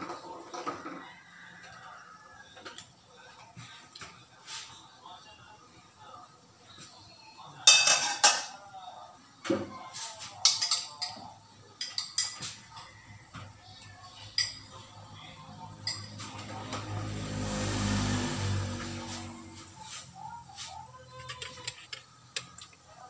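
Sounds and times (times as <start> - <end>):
metal spoon clinking dishes: 7.6 - 8.6, 10.4 - 13.1, 14.3 - 14.9, 15.6 - 16.7, 21.1 - 22.8.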